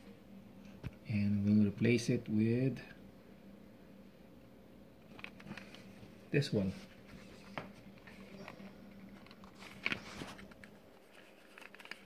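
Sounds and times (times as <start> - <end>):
cardboard box rustling: 6.7 - 12.0
cardboard scrape: 9.4 - 12.0.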